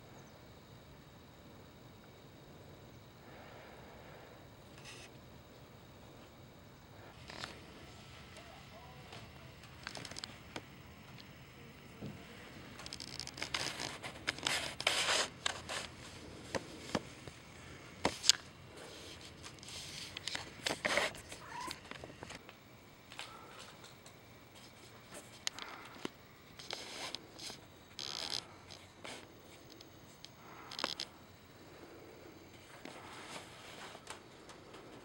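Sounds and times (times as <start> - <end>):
cat meowing: 21.4 - 21.8.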